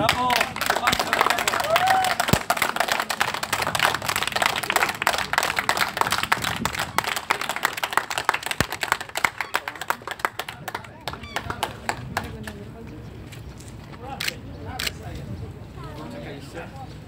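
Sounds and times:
crowd clapping: 0.0s - 12.7s.

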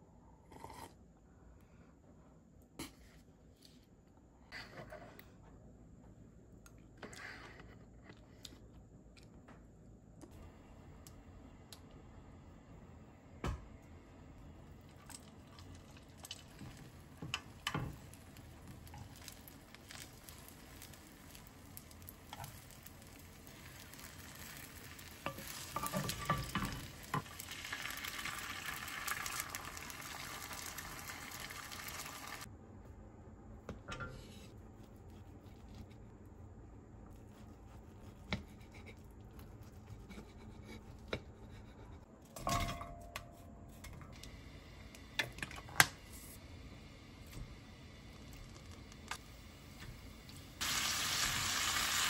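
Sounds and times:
egg sizzling in a pan: 14.9s - 32.5s, 46.7s - 52.0s.

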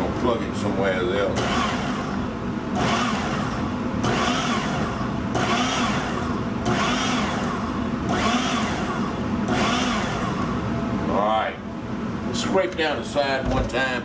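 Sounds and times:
food processor pulsing: 1.4s - 10.7s.

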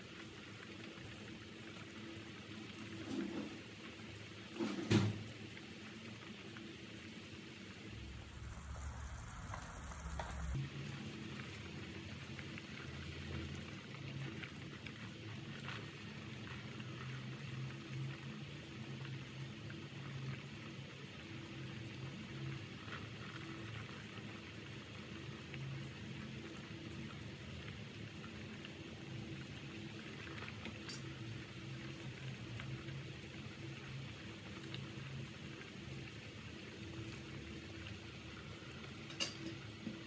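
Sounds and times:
soup bubbling in a pot: 0.0s - 40.0s
faint low hum: 8.0s - 10.7s.

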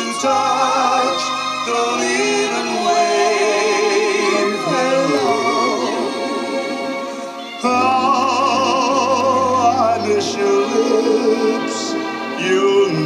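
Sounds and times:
instrumental accompaniment: 0.0s - 13.0s
singer with wide vibrato: 0.0s - 13.0s.

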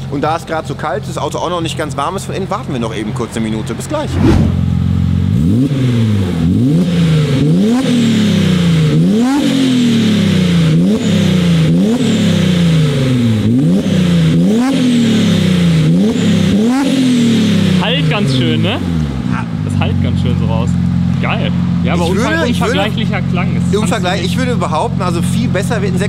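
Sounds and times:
car engine revving: 3.8s - 24.6s.

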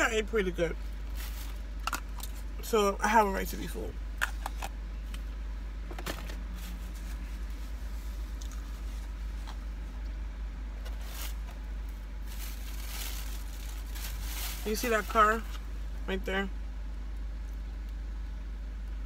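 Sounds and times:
steady low hum: 0.0s - 19.0s
paper wrappers rustling: 0.8s - 2.4s, 10.9s - 15.7s.

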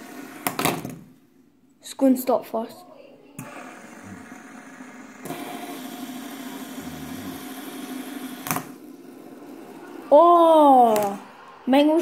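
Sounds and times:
fidget spinners whirring: 3.4s - 12.0s.

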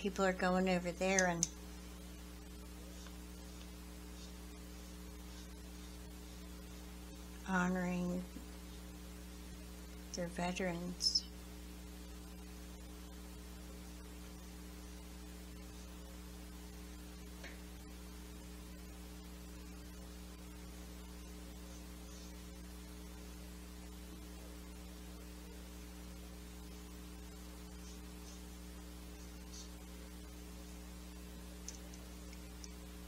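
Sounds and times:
electrical mains hum: 0.0s - 33.0s
paintbrush scratching on paper: 2.7s - 7.0s, 27.7s - 29.9s.

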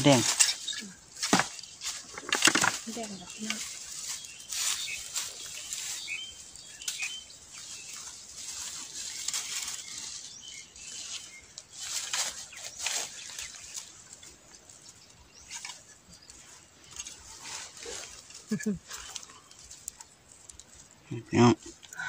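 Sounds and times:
knife swishing through dry leaves: 3.6s - 13.8s.

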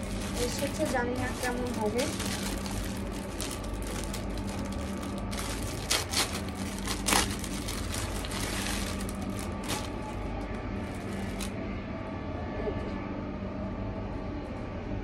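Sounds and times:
plastic bag crinkling: 0.0s - 11.5s
steady low hum: 0.0s - 15.0s.

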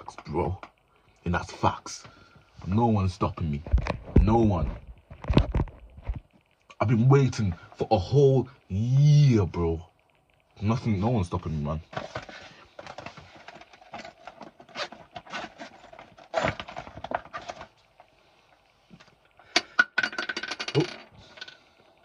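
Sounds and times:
small hard objects clicking: 19.6s - 21.7s.

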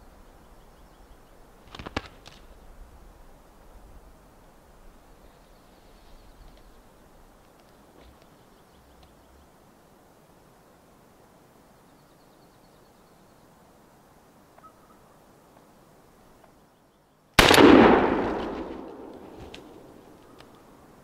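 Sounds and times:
shotgun blast with echo: 17.4s - 19.8s.

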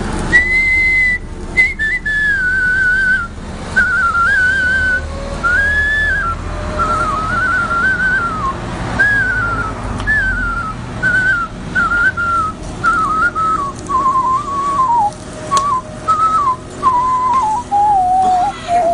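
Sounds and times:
man whistling a tune: 0.3s - 18.9s.

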